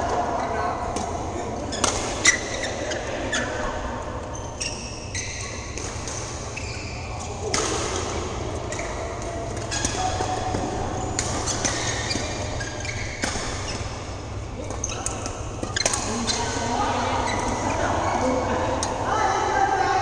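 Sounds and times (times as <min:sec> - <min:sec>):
shoes squeaking on court: 0:01.7 - 0:07.2, 0:08.7 - 0:16.6.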